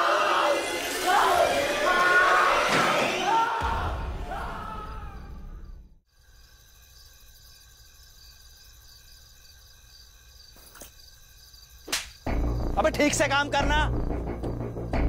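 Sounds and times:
crickets chirping: 4.3 - 15.0
steady insect trill: 4.8 - 15.0.

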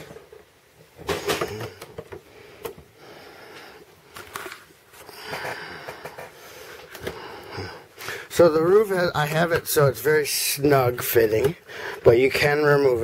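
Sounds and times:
breath noise: 1.6 - 8.3, 11.6 - 12.1.

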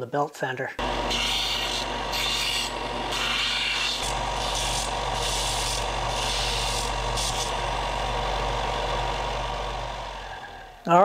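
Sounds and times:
belt sander motor hum: 0.8 - 11.0
metal rasping on sanding belt: 1.0 - 7.7.

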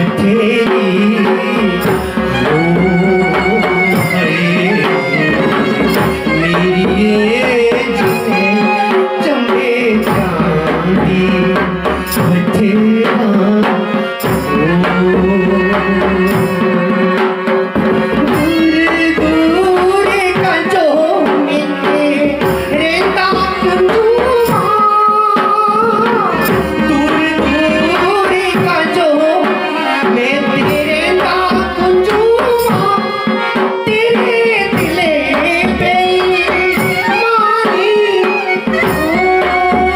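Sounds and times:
hand drum: 0.0 - 39.9
harmonium: 0.0 - 39.9
person singing folk song: 0.0 - 39.9.

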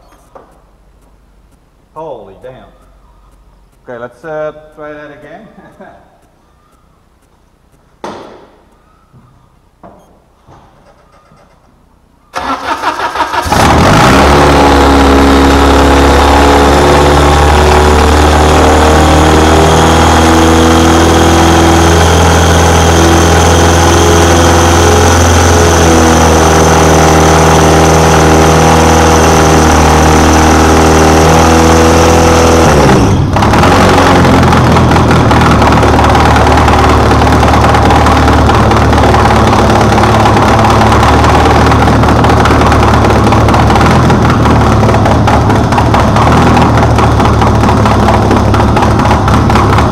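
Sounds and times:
engine cranking and running: 12.4 - 49.9.

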